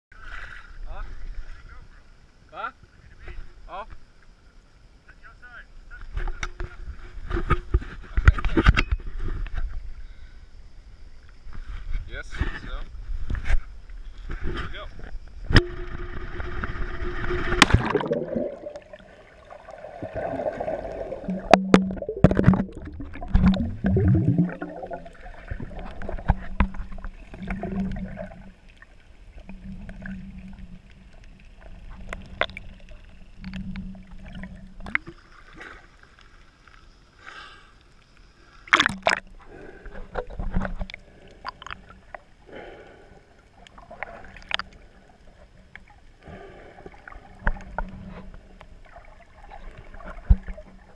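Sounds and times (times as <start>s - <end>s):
low hum: 15.2s - 35.2s
gurgling bubbles underwater: 15.5s - 35.8s, 38.6s - 42.9s, 43.5s - 50.9s
underwater clicks and knocks: 21.2s - 28.4s, 29.4s - 35.2s, 38.7s - 42.2s, 43.7s - 44.8s, 47.4s - 48.7s, 49.7s - 50.9s.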